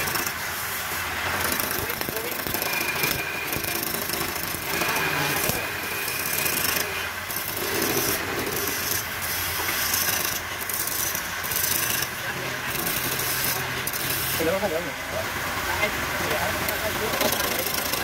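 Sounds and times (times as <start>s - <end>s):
lathe tool scraping wood: 1.3s - 12.0s.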